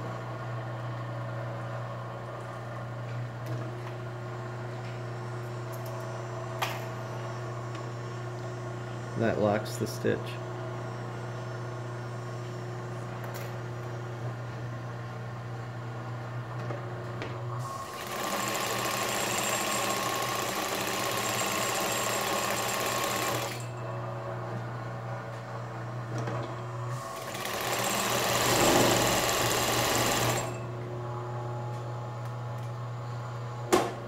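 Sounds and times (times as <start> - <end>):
sewing machine stitching: 17.9 - 23.6, 27.2 - 30.6.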